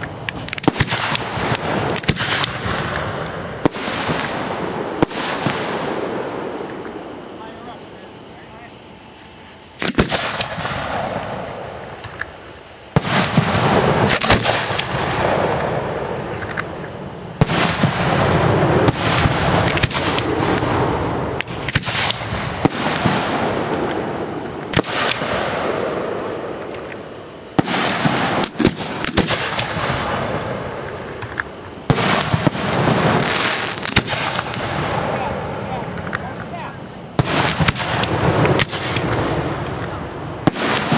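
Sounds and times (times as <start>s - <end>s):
firework shell bursts: 0.0s - 7.6s, 9.2s - 25.8s, 37.2s - 40.9s
firework hiss: 0.0s - 40.9s.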